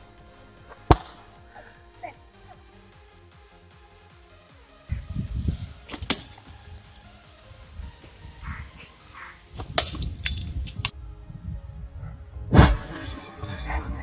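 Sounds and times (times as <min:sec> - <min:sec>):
background music: 0:00.0 - 0:14.0
glass bottle cracking: 0:05.9 - 0:07.1, 0:09.6 - 0:10.9
glass clatter: 0:09.8 - 0:10.9, 0:12.6 - 0:14.0.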